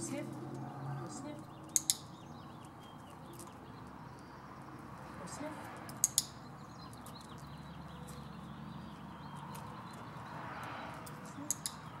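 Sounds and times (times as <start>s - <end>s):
outdoor background noise: 0.0s - 12.0s
sharp clicks: 1.6s - 2.2s, 5.9s - 6.4s
dog claws clicking on concrete: 1.6s - 3.6s, 5.6s - 8.3s, 8.9s - 12.0s.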